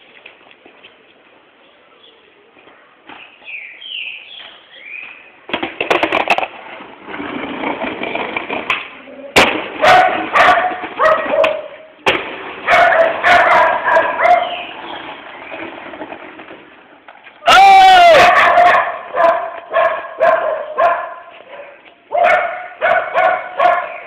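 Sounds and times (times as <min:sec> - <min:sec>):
skateboard rolling on pavement: 0:00.0 - 0:24.0
skateboard clacks and knocks: 0:05.5 - 0:16.6.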